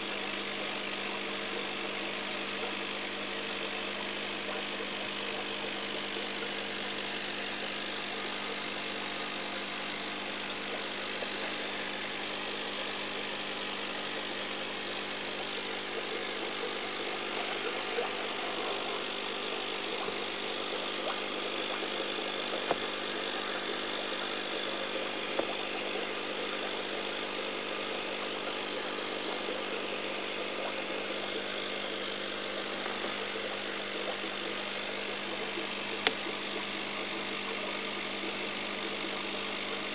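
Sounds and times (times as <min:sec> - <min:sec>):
aquarium equipment hum: 0:00.0 - 0:39.9
faint ticks: 0:36.0 - 0:36.2.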